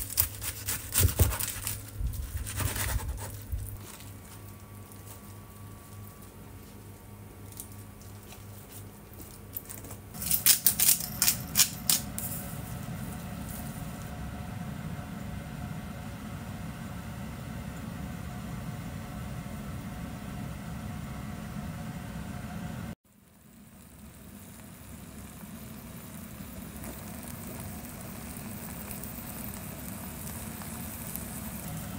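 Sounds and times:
gas burner flame rushing: 0:10.2 - 0:23.0, 0:23.8 - 0:31.9.

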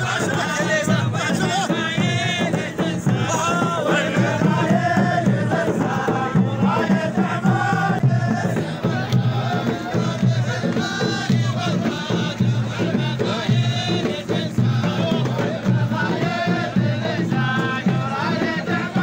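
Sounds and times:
men chanting in unison: 0:00.0 - 0:19.0.

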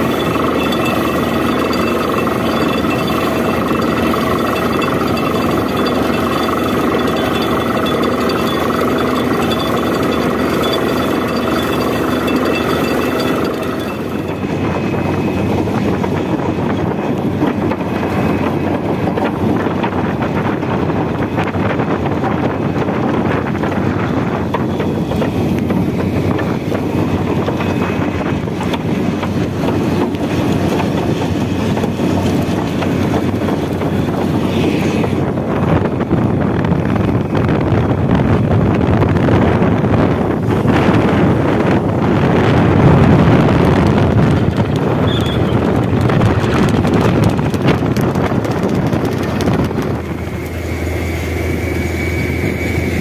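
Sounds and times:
drilling rig and compressor roaring: 0:00.0 - 0:53.0
wind buffeting microphone: 0:00.0 - 0:53.0.

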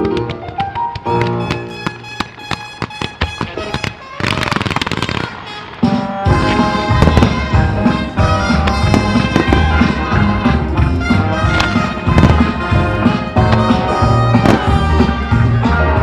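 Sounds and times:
fireworks bangs and crackling: 0:00.0 - 0:16.0
loud soundtrack music: 0:05.2 - 0:16.0.

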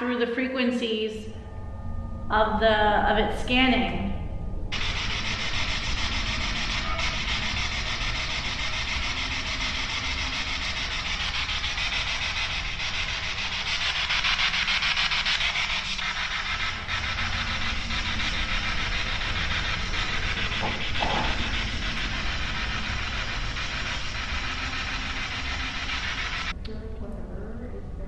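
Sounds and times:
chopped radio static hiss: 0:04.7 - 0:26.5.

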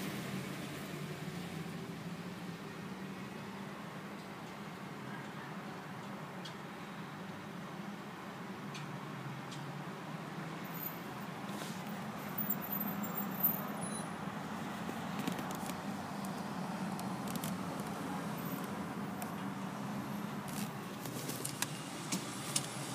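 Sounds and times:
car engine hum from cabin: 0:11.1 - 0:22.9.

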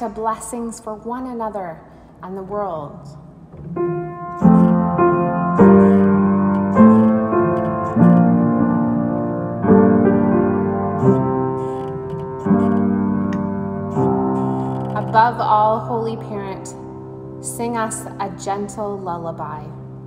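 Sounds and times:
slow solo piano chords: 0:03.5 - 0:18.4.

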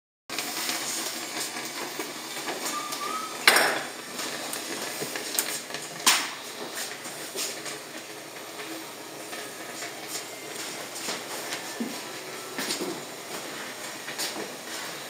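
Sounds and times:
short squeak: 0:02.7 - 0:03.7.

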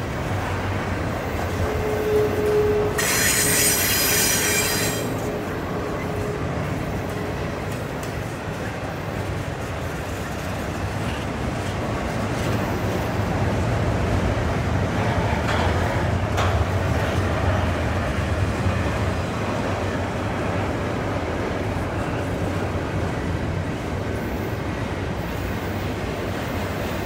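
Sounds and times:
train wheels rumbling on rail: 0:00.0 - 0:27.0
high-pitched wheel squeal: 0:01.6 - 0:05.2.

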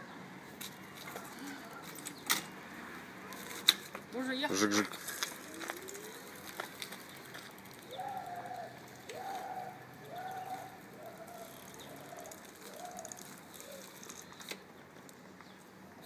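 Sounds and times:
dove cooing: 0:05.4 - 0:06.6, 0:07.8 - 0:14.1.

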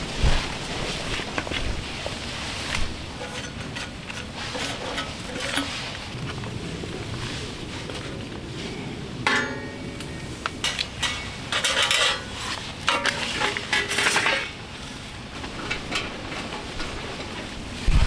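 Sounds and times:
metallic clanks and clinks: 0:03.2 - 0:05.8, 0:10.6 - 0:14.6.

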